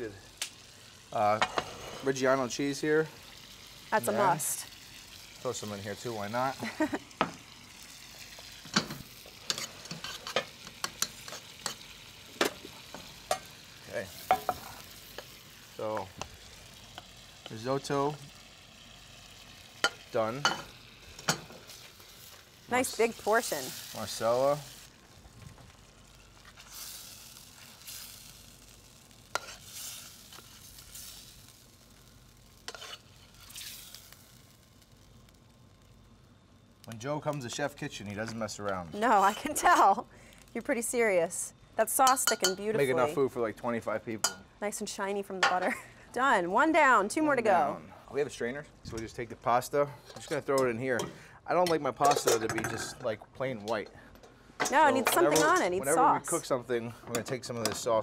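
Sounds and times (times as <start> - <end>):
faint sizzle: 0.0 - 58.0
metal spoon scraping pan: 1.4 - 2.2, 9.4 - 11.8, 29.3 - 30.6, 32.7 - 33.8, 42.1 - 42.7, 50.0 - 53.0
wooden spoon scraping metal pan: 1.4 - 2.3, 32.7 - 33.8.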